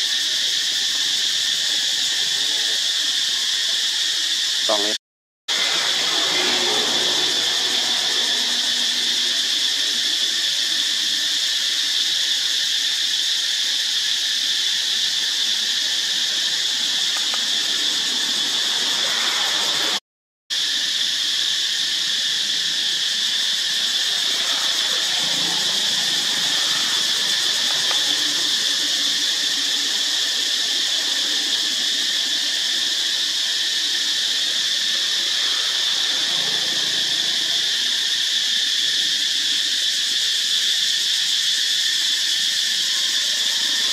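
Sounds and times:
insects droning: 0.0s - 43.9s.

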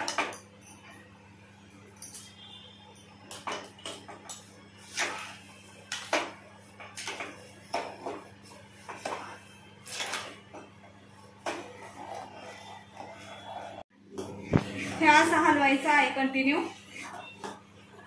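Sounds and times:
spoon scraping metal pot: 11.4s - 13.8s.

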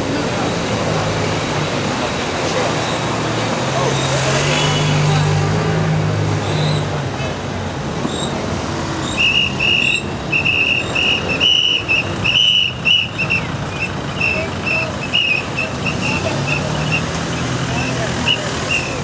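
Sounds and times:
protesting crowd noise: 0.0s - 19.0s
whistle blasts: 9.0s - 17.2s, 17.8s - 19.0s.

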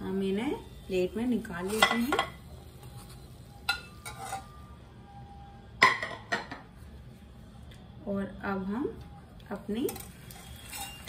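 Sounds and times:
metal spoon clinking against wok: 9.9s - 11.0s.

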